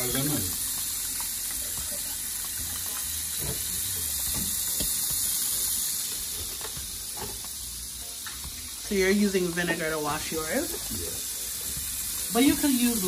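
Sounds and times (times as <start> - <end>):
tap water running into bowl: 0.0 - 8.6.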